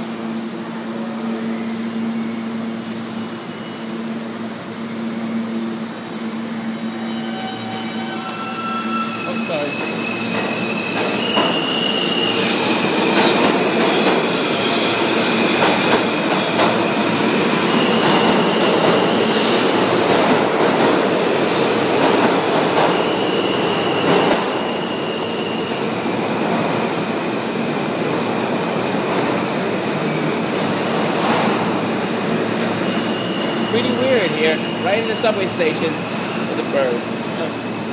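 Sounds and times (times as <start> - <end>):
train wheels rumbling on rails: 5.5 - 37.9
high-pitched wheel squeals: 6.8 - 12.9.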